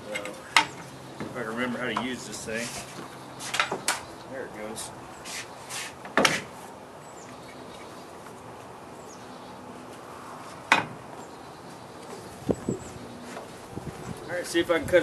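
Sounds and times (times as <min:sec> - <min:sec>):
light bird chirps: 0:07.0 - 0:10.0.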